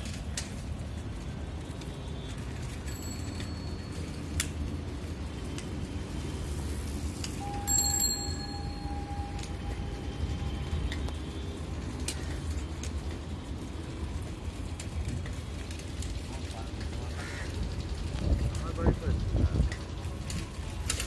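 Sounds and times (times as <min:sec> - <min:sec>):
low outdoor rumble: 0:00.0 - 0:21.0
metallic bell-like rings: 0:07.4 - 0:09.6
steady high tone: 0:07.4 - 0:10.5.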